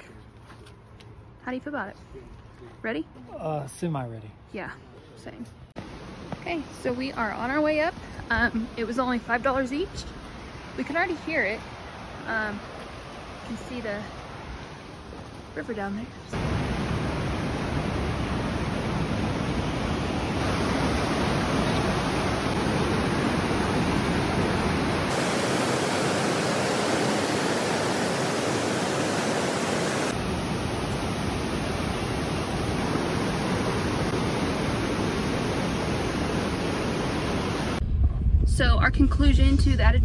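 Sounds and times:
whitewater roaring over boulders: 0:16.4 - 0:37.8.

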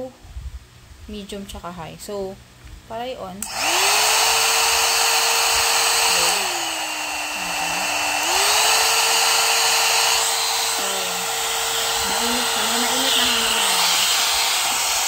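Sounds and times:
hair dryer brush whine: 0:03.4 - 0:15.0.

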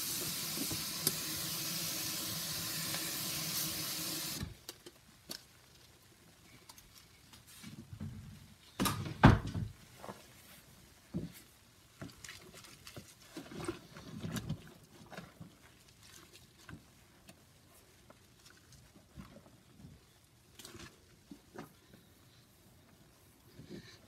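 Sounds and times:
small clicks and splashes: 0:12.0 - 0:19.6, 0:20.4 - 0:21.8.

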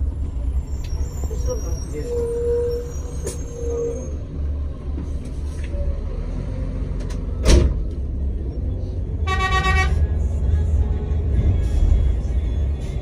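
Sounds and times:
diesel bus engine rumbling: 0:00.0 - 0:13.0
vehicle horn blast: 0:09.2 - 0:10.1.

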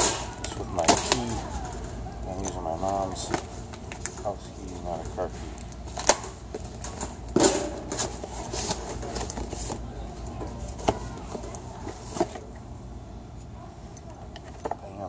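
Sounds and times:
cardboard flaps rustling: 0:05.9 - 0:12.5.

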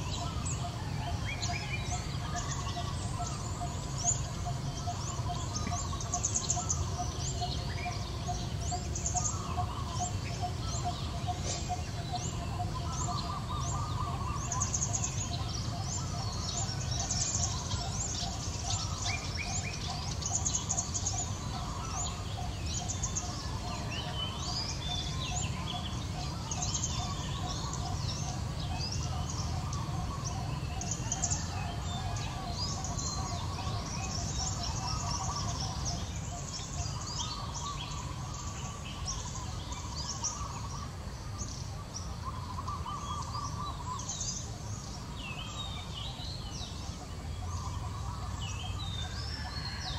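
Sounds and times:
small birds chirping and trilling: 0:00.0 - 0:49.9.

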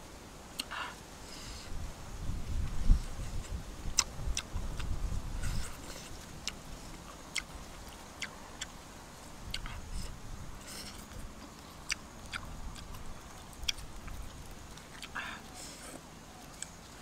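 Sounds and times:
wet mouth clicks and smacks: 0:09.5 - 0:09.8.

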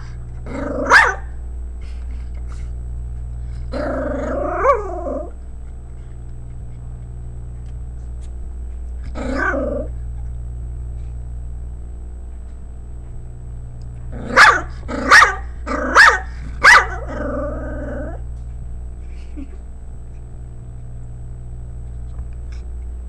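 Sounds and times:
small dog growling: 0:00.0 - 0:01.1, 0:03.5 - 0:06.8, 0:09.0 - 0:10.3, 0:14.1 - 0:18.3
low steady hum: 0:00.0 - 0:23.0
dog barking: 0:00.8 - 0:01.3, 0:14.3 - 0:17.0.

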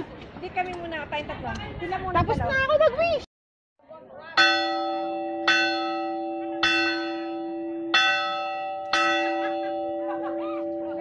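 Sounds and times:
bell clanging: 0:04.4 - 0:11.0.

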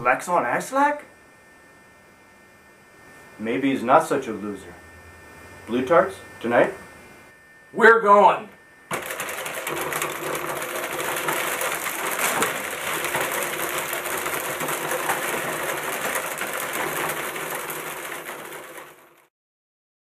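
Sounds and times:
steady motor drone: 0:08.8 - 0:19.3
adding machine clattering: 0:08.9 - 0:19.3.

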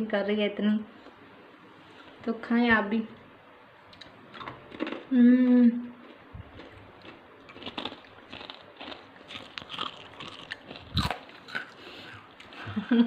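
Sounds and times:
crunchy snack chewing: 0:04.0 - 0:05.1, 0:06.0 - 0:12.6.

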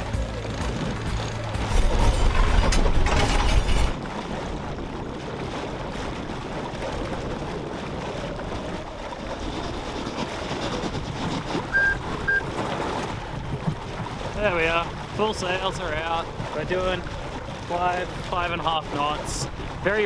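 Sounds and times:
water rushing past hull: 0:00.0 - 0:20.0
wind buffeting microphone: 0:00.0 - 0:20.0
short electronic beeps: 0:11.7 - 0:12.4.

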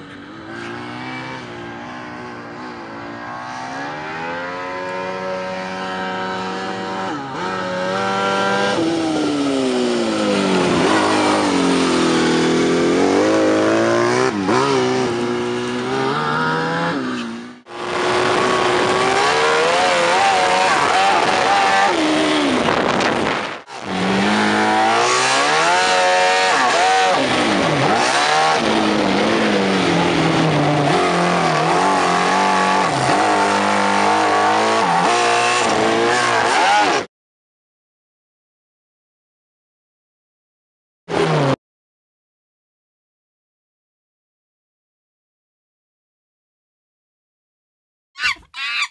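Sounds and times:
engine revving hard: 0:00.2 - 0:37.1.

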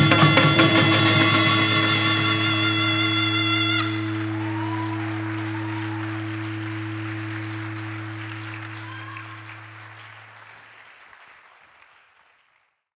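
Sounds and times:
low held musical note: 0:00.0 - 0:08.8
audience applauding: 0:02.6 - 0:12.9.

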